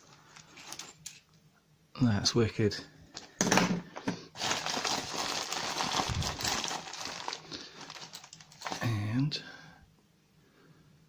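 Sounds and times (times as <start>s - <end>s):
plastic bag crinkling: 4.3s - 8.9s.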